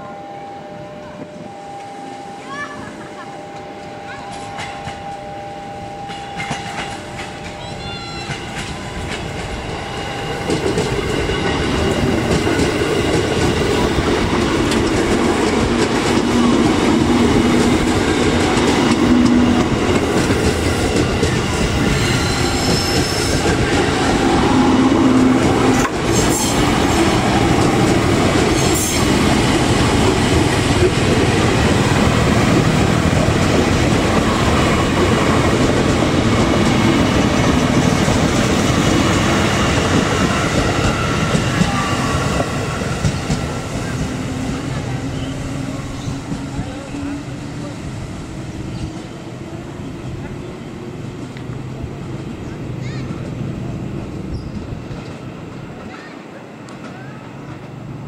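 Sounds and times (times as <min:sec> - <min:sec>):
train wheels rumbling on rail: 0:02.7 - 0:58.0
high wheel squeals: 0:21.4 - 0:25.8.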